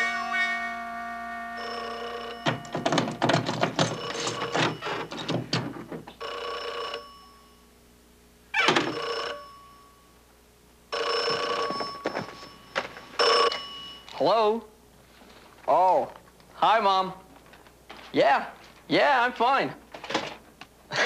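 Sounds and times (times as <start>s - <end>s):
telephone bell ringing: 0.0s - 5.2s, 6.2s - 7.7s, 8.6s - 10.2s, 10.9s - 14.2s
clattering and thumping: 2.4s - 6.2s.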